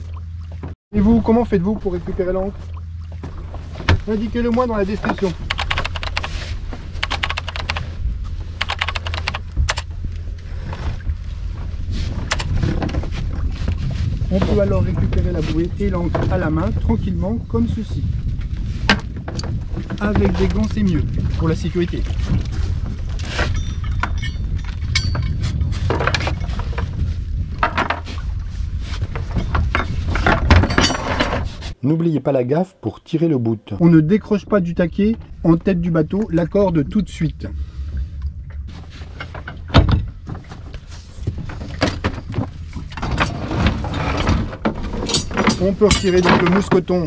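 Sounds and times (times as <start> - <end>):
anchor knocking: 5.5 - 6.3, 7.0 - 7.8, 8.6 - 9.8, 12.3 - 12.6
keyboard typing: 5.5 - 6.4, 7.0 - 7.8, 8.6 - 9.8, 12.3 - 12.5.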